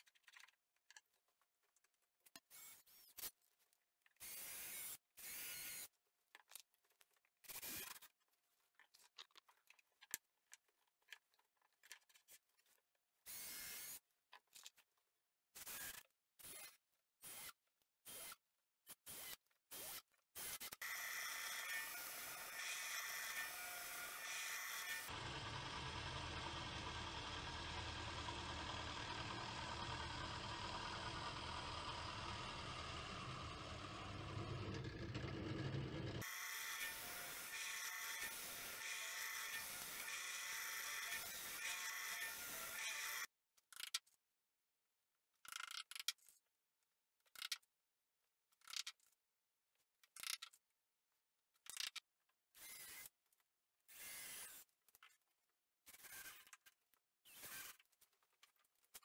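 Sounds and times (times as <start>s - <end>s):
drill press boring into wood: 19.1s - 43.3s, 57.3s - 57.8s
cordless drill driving screws: 57.2s - 57.8s.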